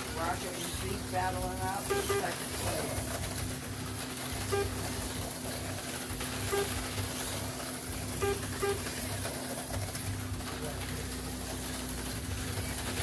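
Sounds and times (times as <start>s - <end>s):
slot car motors whirring: 0.0s - 13.0s
short electronic beeps: 6.5s - 6.8s, 8.2s - 8.9s.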